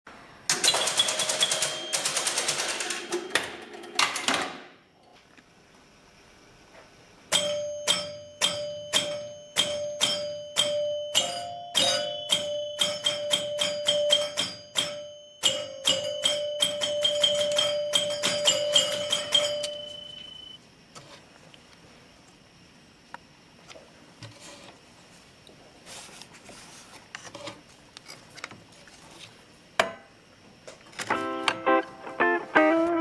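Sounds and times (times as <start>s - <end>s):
pinball mechanical clatter: 0.5s - 4.8s, 7.3s - 20.1s.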